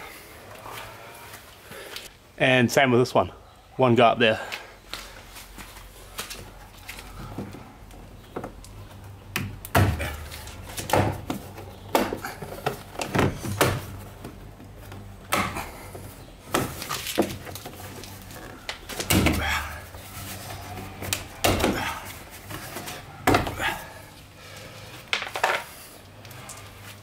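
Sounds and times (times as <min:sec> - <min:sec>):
panels knocking against body: 0:09.4 - 0:14.4, 0:18.8 - 0:19.8, 0:21.0 - 0:22.6, 0:23.2 - 0:23.7.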